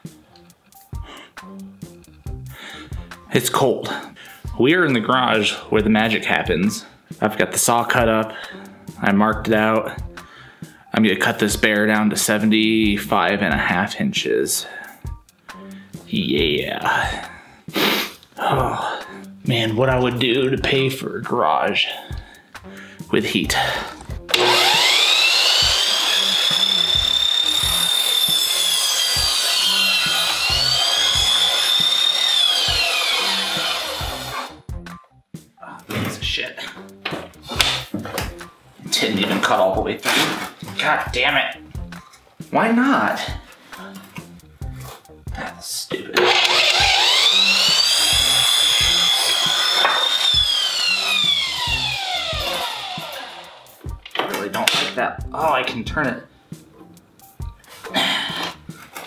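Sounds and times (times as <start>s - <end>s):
saw rasping through wood: 23.5s - 34.7s, 46.2s - 53.8s
miter saw motor whine: 24.3s - 34.6s, 46.2s - 53.8s.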